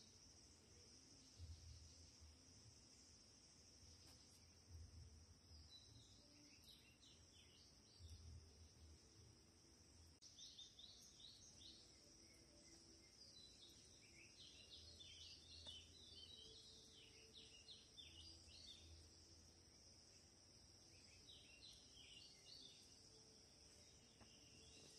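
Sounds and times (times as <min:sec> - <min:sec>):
faint bird chirping: 0:00.0 - 0:24.9
steady high-pitched hiss: 0:00.0 - 0:24.9.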